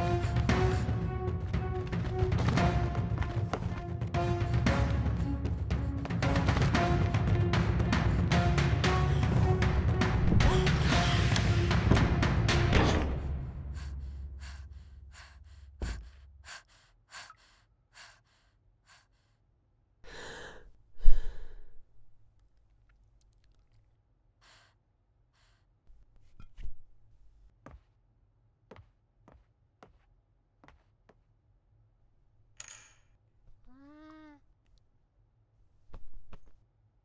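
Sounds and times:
music: 0.0 - 15.8
footsteps: 1.8 - 4.1.

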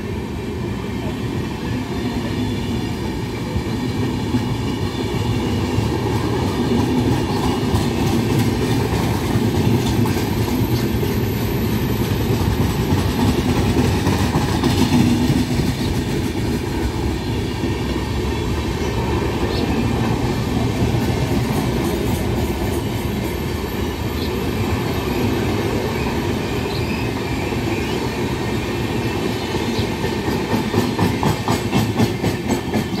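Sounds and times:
train wheels rumbling on rails: 0.0 - 33.0
clickety-clack over rail joints: 3.2 - 18.0, 19.4 - 23.7, 26.6 - 33.0.

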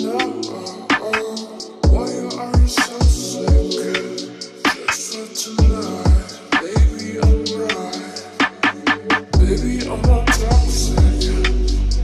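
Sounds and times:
background music with steady beat: 0.0 - 12.0
deep kick drum thumps: 9.4 - 11.2.

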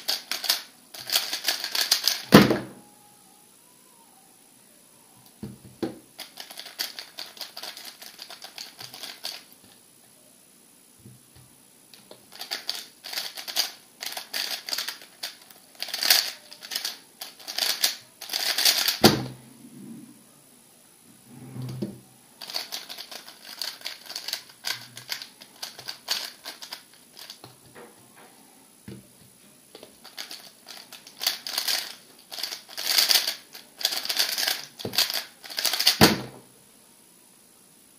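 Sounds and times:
plastic puzzle cube clicking: 12.4 - 19.0, 30.1 - 36.0.

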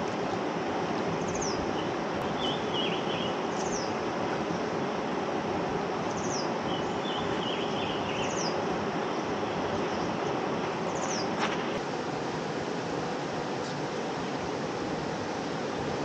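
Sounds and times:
bird twitter: 1.2 - 4.0, 6.1 - 8.6, 10.9 - 11.4.

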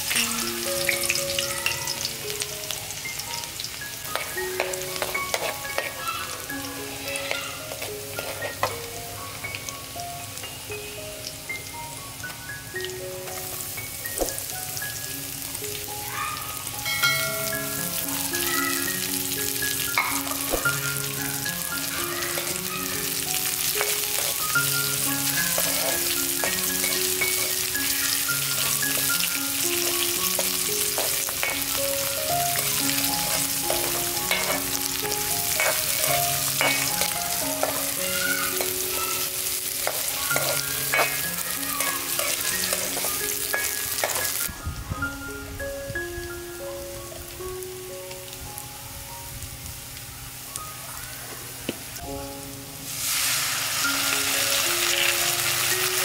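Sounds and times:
food sizzling in hot oil: 0.0 - 44.6, 46.6 - 51.2, 51.8 - 56.0
slow gentle background melody: 0.0 - 50.7, 51.6 - 56.0
spatula scraping a wok: 4.1 - 6.0, 7.2 - 8.9, 23.4 - 44.4.

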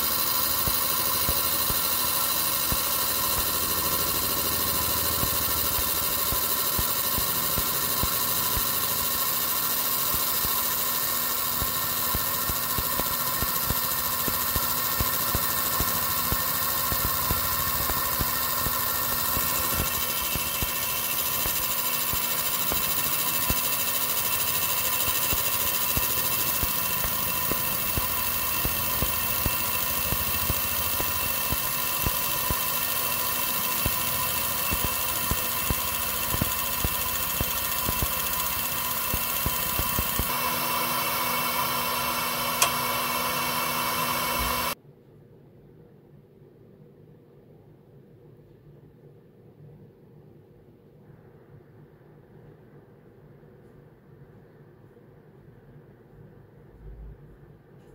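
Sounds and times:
engraving machine hum: 0.0 - 44.8
high whining tones: 0.0 - 44.8.

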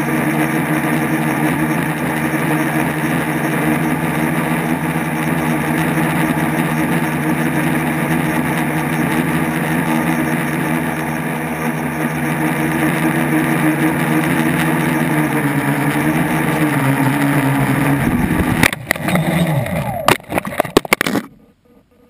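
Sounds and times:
drone motors and propellers buzzing: 0.0 - 22.0
drone hitting the ground: 3.8 - 21.3.

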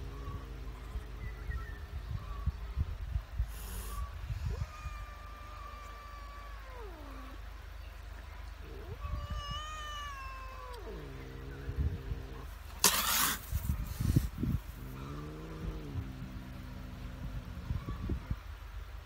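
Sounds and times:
cat yowling: 0.0 - 1.1, 4.0 - 7.4, 8.6 - 12.4, 17.4 - 18.4.

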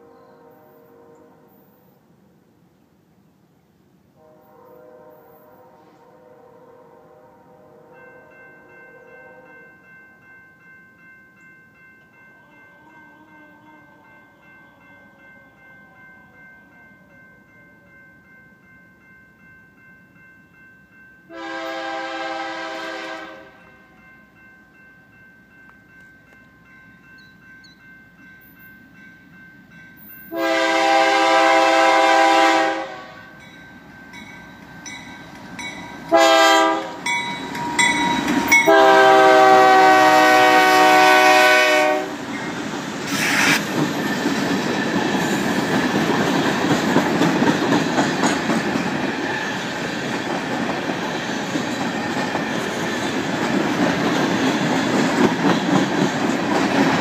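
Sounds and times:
locomotive air horn blasts: 0.0 - 1.8, 4.2 - 9.6, 12.4 - 14.9, 21.3 - 23.6, 30.3 - 33.4, 36.1 - 37.1, 38.6 - 42.2
train rumble: 30.4 - 57.0.

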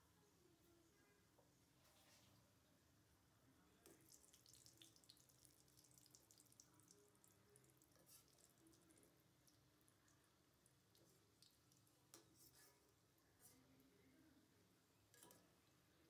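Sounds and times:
food deep-frying in hot oil: 3.8 - 12.4.

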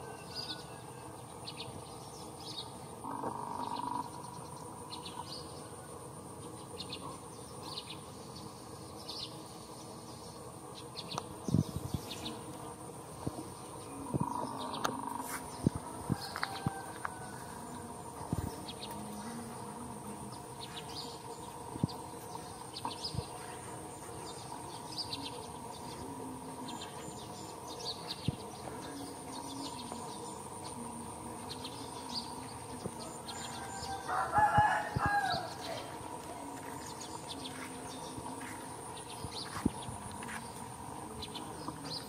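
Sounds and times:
rooster crowing: 0.0 - 1.2, 15.8 - 17.8, 33.0 - 36.0
birds chirping: 0.0 - 42.0
high insect buzz: 0.0 - 42.0.

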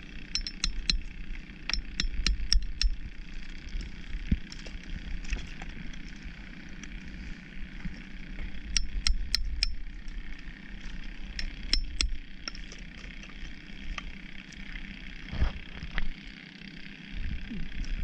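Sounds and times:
steady low rumble: 0.0 - 14.2
hammer clinking on oyster shells: 0.4 - 1.0, 1.7 - 3.0, 11.4 - 12.6.

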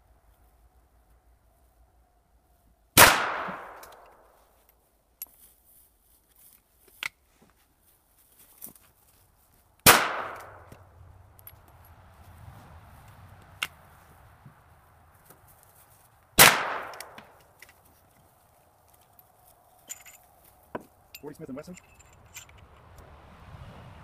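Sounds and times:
rifle shots echoing: 3.0 - 4.2, 9.8 - 10.8, 16.4 - 17.4.

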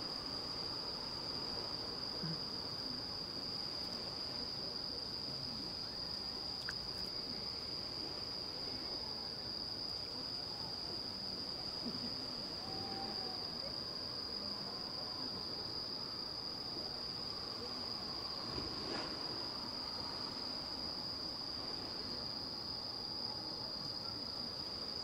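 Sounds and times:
crickets trilling: 0.0 - 25.0
faint low background murmur: 1.5 - 25.0.

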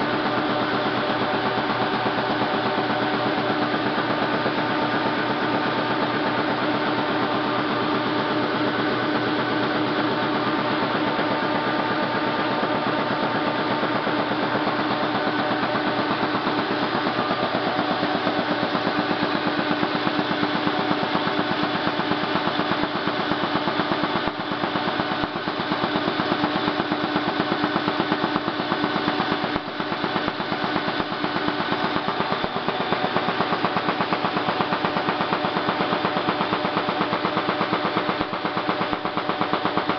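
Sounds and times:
printing press clattering: 21.7 - 39.9.

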